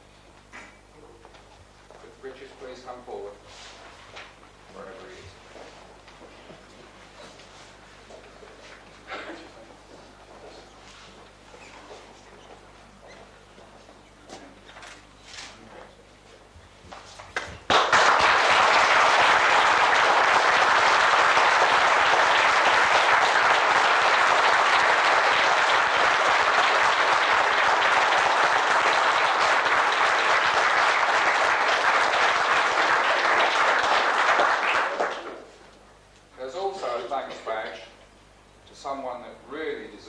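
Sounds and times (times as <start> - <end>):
audience applause: 17.7 - 35.5.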